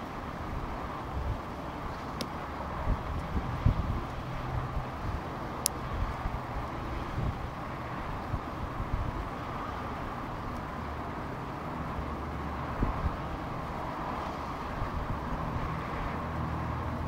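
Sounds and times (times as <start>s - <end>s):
outdoor background hiss and rumble: 0.0s - 17.0s
wind on microphone: 2.7s - 9.3s, 12.6s - 16.2s.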